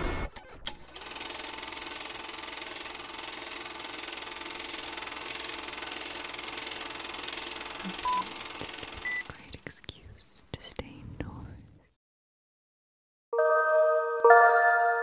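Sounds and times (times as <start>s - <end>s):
film projector clatter: 0.7s - 9.2s.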